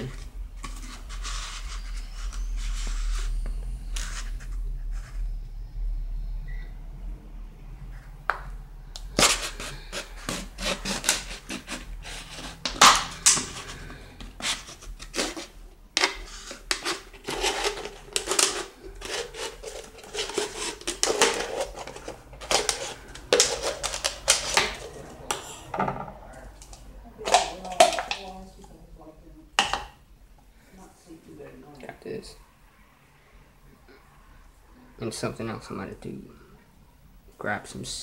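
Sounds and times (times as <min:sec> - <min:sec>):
plastic crackling and crinkling: 0:09.0 - 0:25.5, 0:26.5 - 0:28.4
knife sawing plastic bottle: 0:09.2 - 0:25.0.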